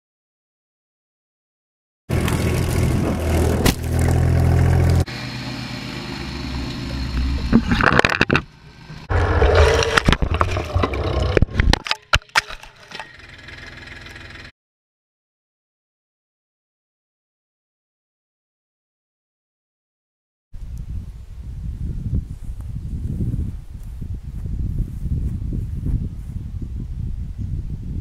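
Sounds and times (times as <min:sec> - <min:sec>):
branches cracking and scraping: 0:02.1 - 0:04.3
tractor engine running: 0:02.1 - 0:14.5.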